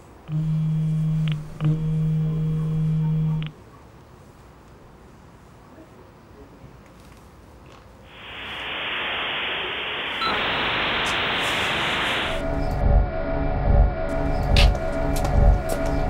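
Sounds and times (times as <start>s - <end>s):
electronic static hiss: 8.1s - 12.6s
music with deep beat: 12.4s - 16.0s.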